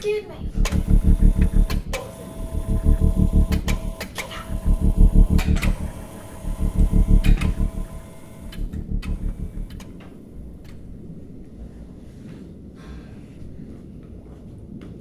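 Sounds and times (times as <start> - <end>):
faint low hum: 0.0 - 15.0
low pulsing mechanical buzz: 0.3 - 12.1
sharp clicks: 0.6 - 10.8.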